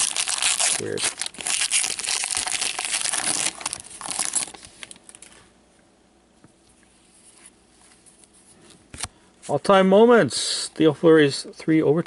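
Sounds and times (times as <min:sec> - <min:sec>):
card pack wrapper crinkling: 0:00.0 - 0:05.4
quiet handling of cards: 0:06.3 - 0:09.7.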